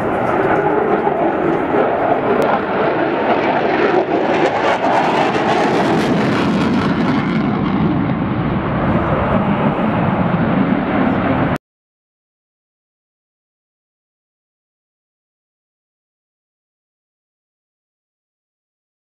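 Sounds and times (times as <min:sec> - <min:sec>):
jet engine roar: 0:00.0 - 0:11.6.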